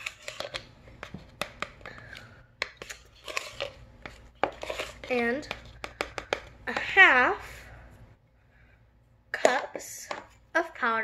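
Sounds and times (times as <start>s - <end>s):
plastic scooper scraping powder: 0.0s - 2.1s, 2.7s - 6.5s.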